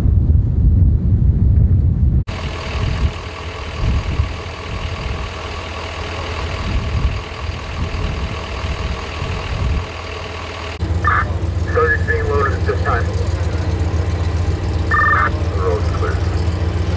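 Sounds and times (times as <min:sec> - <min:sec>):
wind buffeting microphone: 0:00.0 - 0:10.4
truck engine idling: 0:02.3 - 0:16.9.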